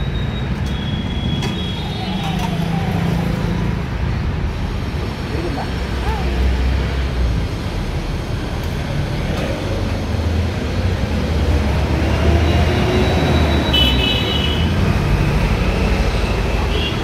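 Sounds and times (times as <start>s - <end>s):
cars and motorbikes passing: 1.3s - 17.0s.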